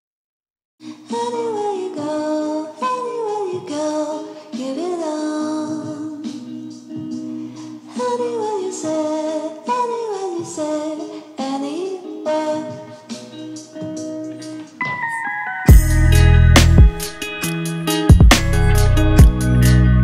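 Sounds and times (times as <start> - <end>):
background music: 0.8 - 20.0
held low tone: 14.9 - 17.0.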